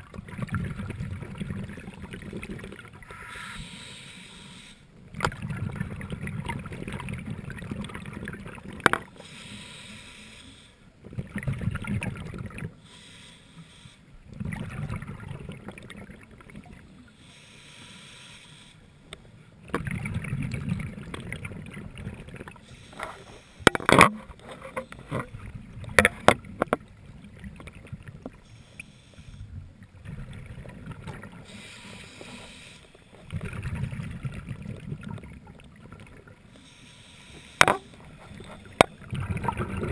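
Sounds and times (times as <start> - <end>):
exhaled bubbles rumbling: 0.0 - 3.1, 5.1 - 9.1, 11.0 - 12.8, 14.3 - 17.0, 19.6 - 22.6, 29.5 - 31.5, 33.2 - 36.4, 37.6 - 39.9
regulator breathing hiss: 3.1 - 4.9, 9.2 - 10.8, 12.8 - 14.1, 17.1 - 19.1, 22.6 - 23.7, 28.4 - 29.6, 31.4 - 33.2, 36.5 - 38.8.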